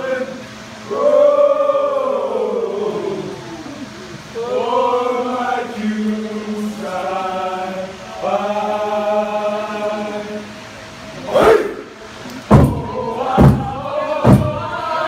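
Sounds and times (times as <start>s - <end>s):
men chanting in unison: 4.4s - 10.5s.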